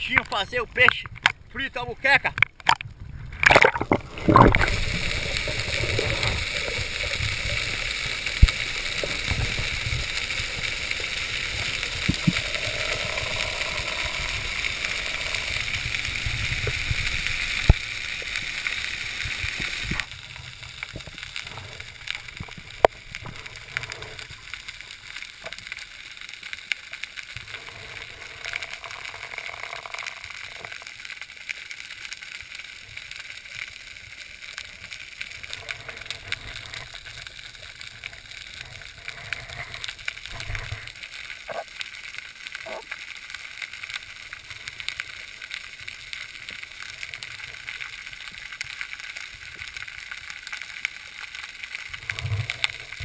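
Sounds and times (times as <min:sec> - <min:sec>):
water rushing: 0:00.0 - 0:25.6
underwater hiss: 0:03.7 - 0:25.6.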